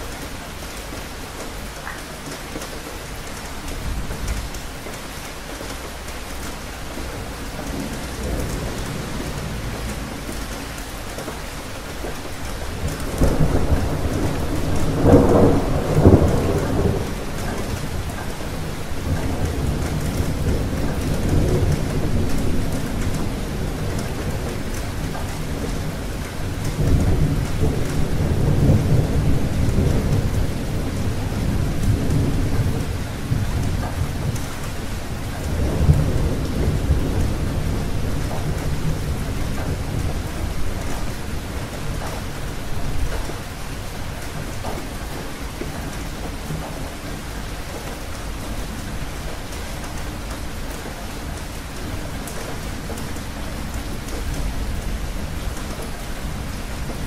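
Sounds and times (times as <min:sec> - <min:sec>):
steady rain falling: 0:00.0 - 0:57.0
rolling thunder: 0:06.7 - 0:57.0.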